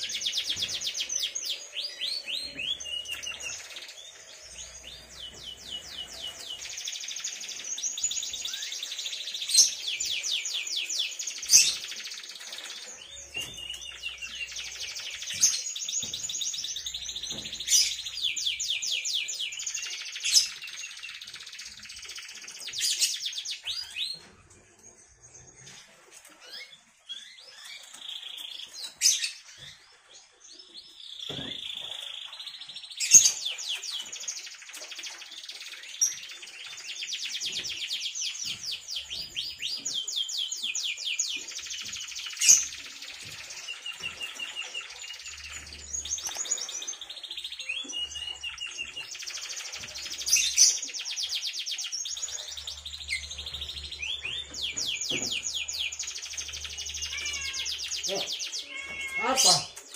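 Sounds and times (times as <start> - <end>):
canary chirps: 0.0 - 59.9
canary singing trills: 0.0 - 59.9.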